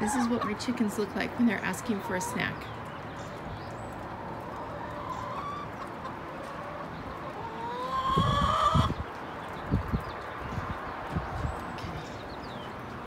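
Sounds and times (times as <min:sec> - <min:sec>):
hens calling: 0:00.0 - 0:02.8, 0:04.1 - 0:09.0.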